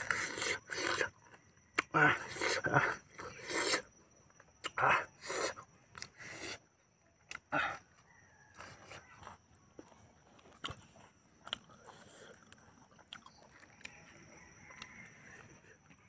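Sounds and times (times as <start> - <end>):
chewing and mouth clicks: 7.2 - 16.0.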